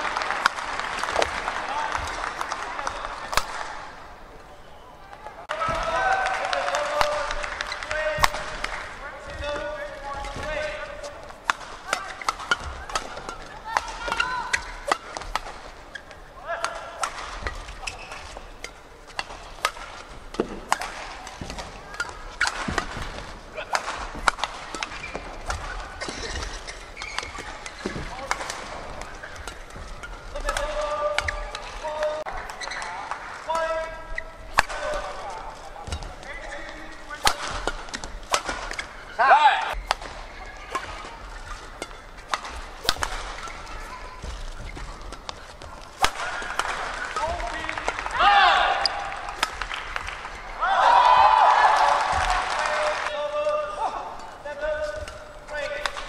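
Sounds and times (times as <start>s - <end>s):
racket striking shuttlecock: 0.0s - 3.9s, 5.6s - 50.6s, 53.6s - 56.0s
shoes squeaking on court: 2.9s - 5.8s, 7.5s - 47.7s
shoe squeak on court floor: 17.8s - 18.4s, 26.0s - 28.1s, 32.5s - 33.0s.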